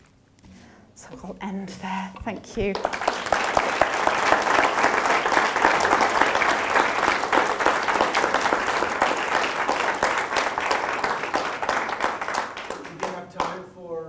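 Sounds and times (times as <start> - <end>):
audience applauding: 2.6 - 13.6.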